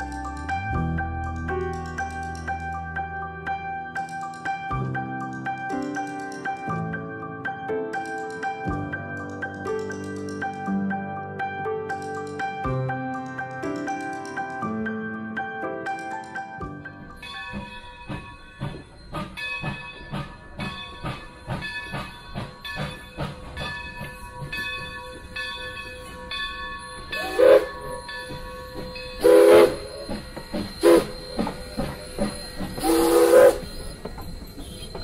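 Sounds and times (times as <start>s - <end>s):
steam hissing: 27.1s - 35.0s
steam whistle blasts: 27.2s - 28.0s, 29.2s - 30.2s, 30.8s - 31.4s, 32.8s - 34.0s
steam locomotive exhaust chuffing: 27.2s - 35.0s.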